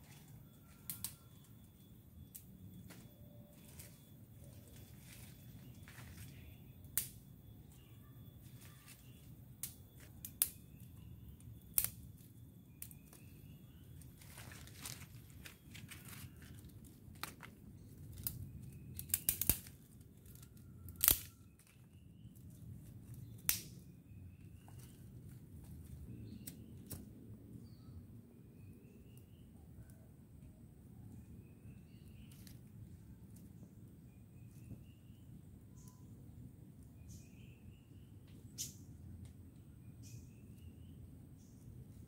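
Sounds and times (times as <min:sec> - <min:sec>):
dry twigs snapping and cracking: 0:00.6 - 0:01.4, 0:04.8 - 0:07.2, 0:08.5 - 0:10.8, 0:11.4 - 0:27.1, 0:32.2 - 0:32.7.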